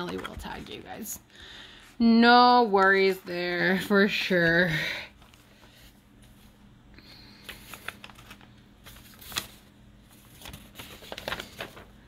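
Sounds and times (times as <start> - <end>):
plastic mailer crinkling: 7.4 - 12.0.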